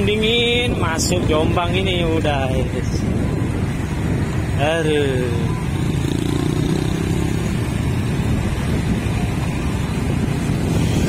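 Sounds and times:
motorcycle engine hum: 0:00.0 - 0:11.0.

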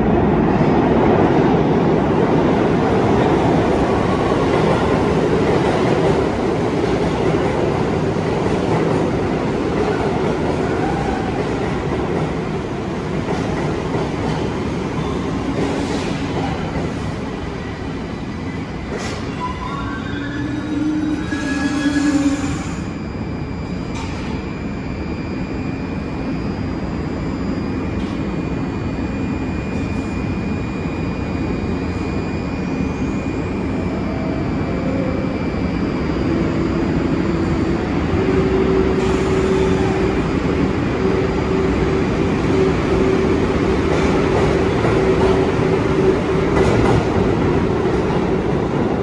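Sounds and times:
train wheels rumbling on rails: 0:00.0 - 0:22.8, 0:34.5 - 0:49.0
thin high squeal: 0:19.4 - 0:23.0
low whine: 0:22.9 - 0:44.1.

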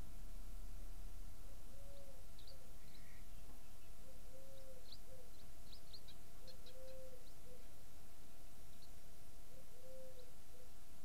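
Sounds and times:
small birds chirping: 0:01.4 - 0:10.9
dove cooing: 0:01.7 - 0:03.2, 0:04.0 - 0:05.4, 0:06.4 - 0:07.7, 0:09.5 - 0:10.8.

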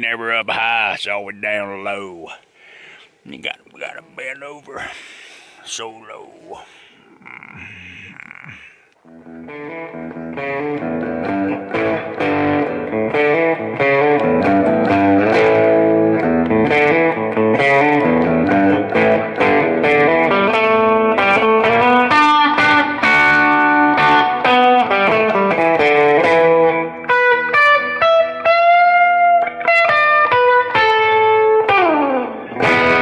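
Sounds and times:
guitar plucking notes and chords: 0:09.0 - 0:33.0.

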